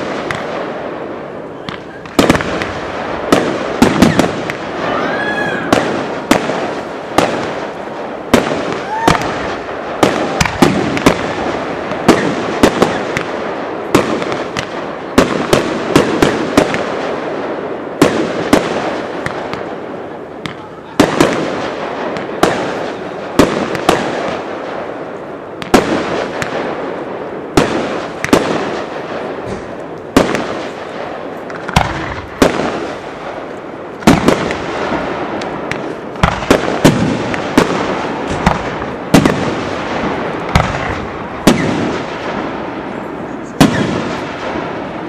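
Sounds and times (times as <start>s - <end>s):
firework shells bursting: 27.6s - 42.5s.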